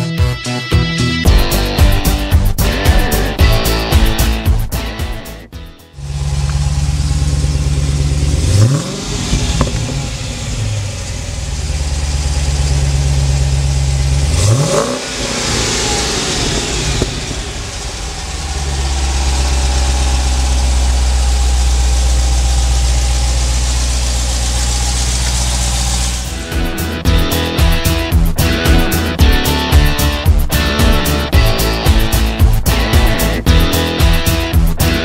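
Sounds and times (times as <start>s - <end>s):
car engine idling and revving: 1.2s - 35.0s.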